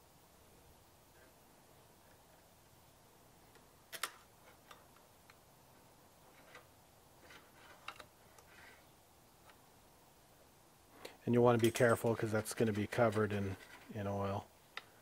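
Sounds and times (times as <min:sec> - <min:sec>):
light metal scraping: 0:11.0 - 0:14.2.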